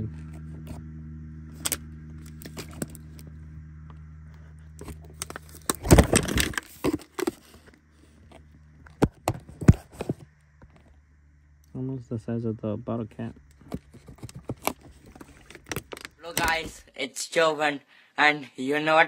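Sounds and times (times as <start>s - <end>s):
steady low hum: 0.0s - 17.1s
cardboard rustling and crackling: 4.4s - 11.0s, 13.3s - 16.9s.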